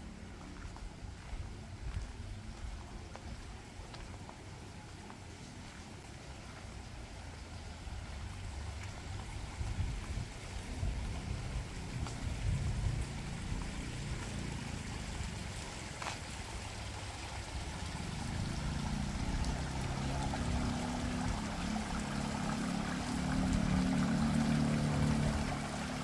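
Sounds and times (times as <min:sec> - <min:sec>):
running water rushing: 0:00.0 - 0:26.0
wind rumbling on microphone: 0:09.0 - 0:14.2.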